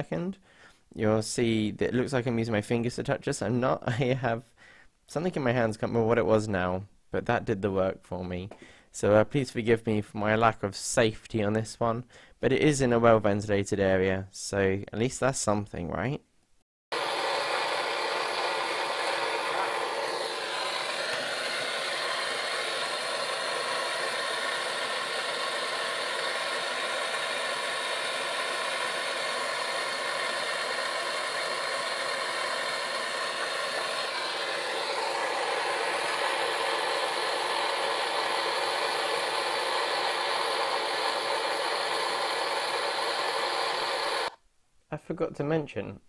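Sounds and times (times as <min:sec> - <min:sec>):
blowtorch hissing: 0:16.9 - 0:44.4.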